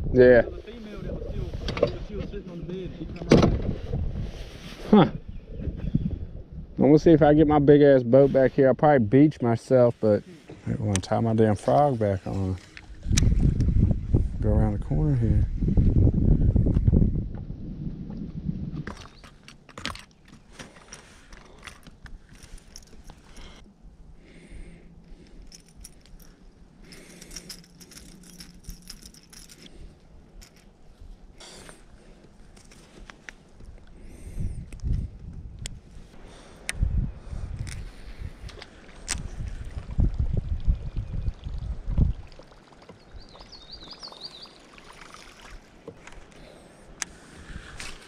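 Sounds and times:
lure and fishing line rattling: 18.9s - 23.6s, 24.9s - 30.9s
small bird chirping: 43.0s - 44.8s.

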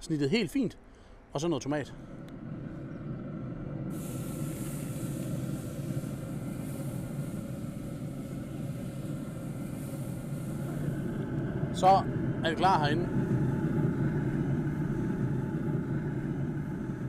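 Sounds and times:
low hum: 1.8s - 17.0s
chicken sizzling on a grill: 3.9s - 11.0s.

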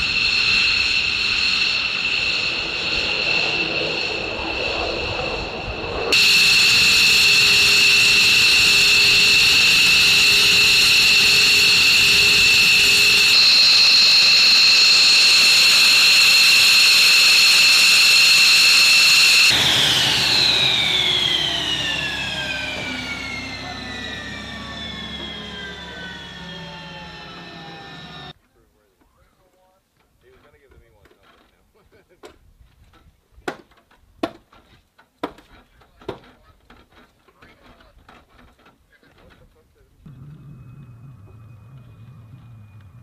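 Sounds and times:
jet engines whining: 0.0s - 28.4s, 40.1s - 43.0s.

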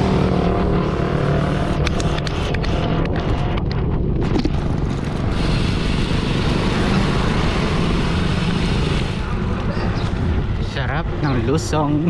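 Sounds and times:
wind buffeting microphone: 1.4s - 12.0s.

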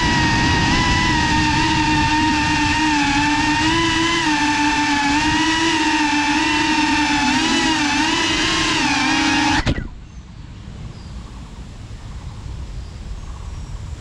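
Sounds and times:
drone motors whining: 0.0s - 10.1s
faint outdoor background noise: 4.5s - 14.0s.

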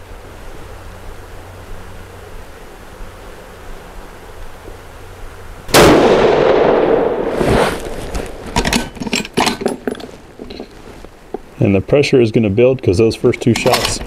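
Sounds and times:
rifle shot with echo: 5.7s - 7.4s.

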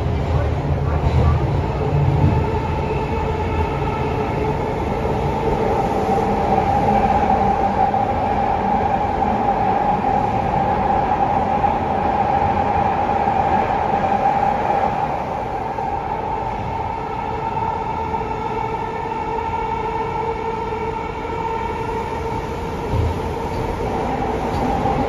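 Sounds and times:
subway train running in tunnel: 0.0s - 25.0s.

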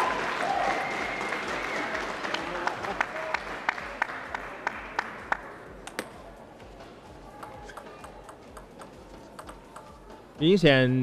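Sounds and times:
arena applause: 0.0s - 5.5s
table tennis rally: 0.0s - 11.0s.

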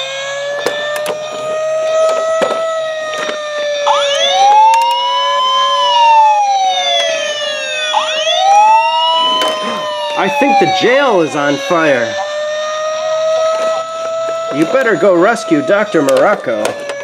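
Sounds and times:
low wavering toy siren: 0.0s - 17.0s
rising and falling toy siren: 0.0s - 17.0s
plastic toy clicks and knocks: 0.6s - 1.4s, 2.0s - 3.4s, 4.5s - 5.0s, 15.9s - 17.0s.

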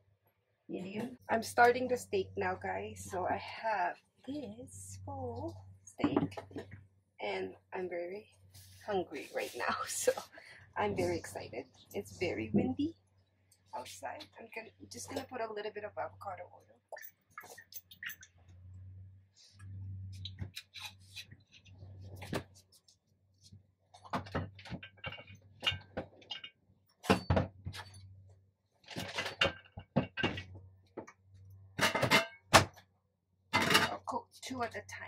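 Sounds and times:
cookware and utensils clattering: 28.9s - 30.5s, 31.7s - 32.7s, 33.6s - 34.2s.

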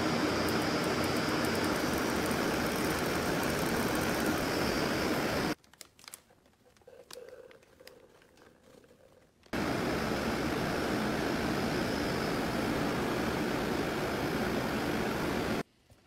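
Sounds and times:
plastic bag crinkling: 5.6s - 9.5s.

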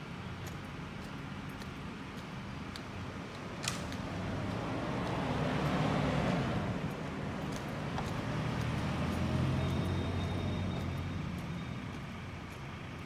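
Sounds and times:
car engine passing: 3.5s - 12.5s
car passing close by: 3.6s - 11.4s.

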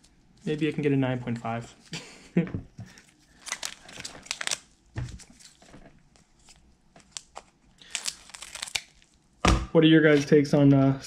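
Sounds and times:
foil pack crinkling: 2.9s - 9.2s.

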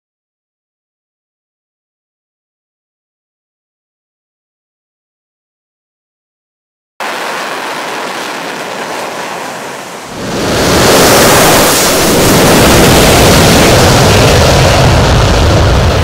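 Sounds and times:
jet engine roar: 7.0s - 16.0s.

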